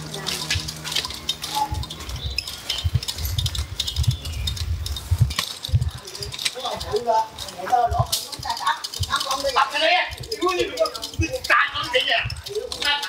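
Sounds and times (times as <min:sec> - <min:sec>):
wheelchair rattling on concrete: 0:00.0 - 0:13.0
wheels bumping: 0:00.0 - 0:13.0.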